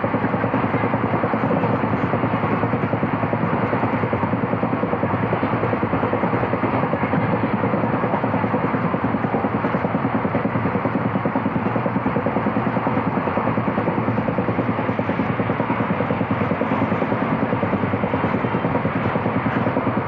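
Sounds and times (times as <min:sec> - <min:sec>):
wheels rumbling on rails: 0:13.7 - 0:20.0.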